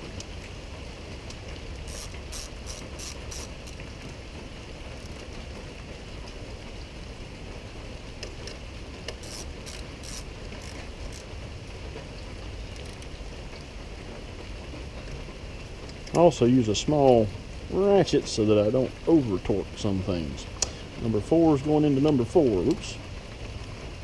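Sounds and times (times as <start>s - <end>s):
steady background hiss: 0.0s - 24.0s
hand ratchet clicking: 1.8s - 3.8s, 9.1s - 11.3s.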